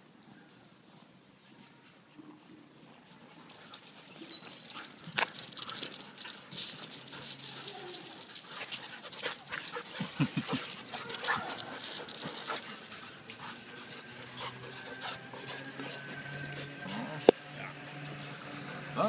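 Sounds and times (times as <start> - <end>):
paws scuffing on concrete: 3.0 - 17.3
dog panting: 3.5 - 19.0.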